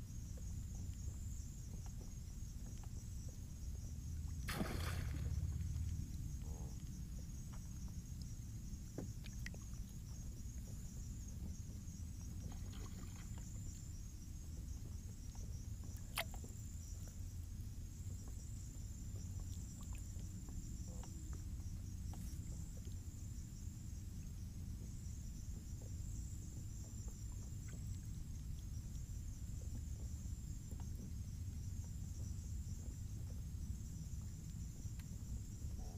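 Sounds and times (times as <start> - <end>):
night insects trilling: 0.0 - 35.9
low rumble: 3.6 - 8.2.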